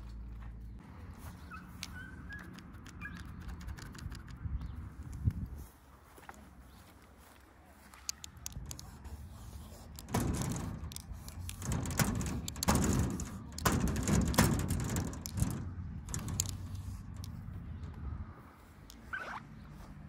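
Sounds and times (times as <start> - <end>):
marker scratching on sheet metal: 8.3 - 17.5
low steady rumble: 8.3 - 18.9.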